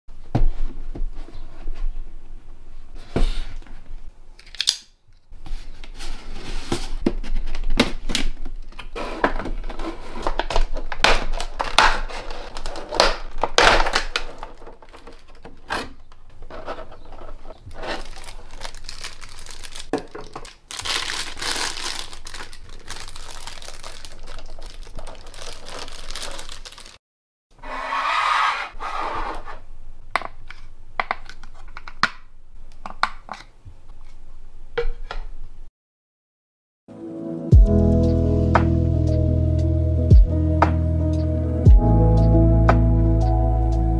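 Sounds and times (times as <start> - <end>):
plastic packaging crinkling: 10.2 - 27.0.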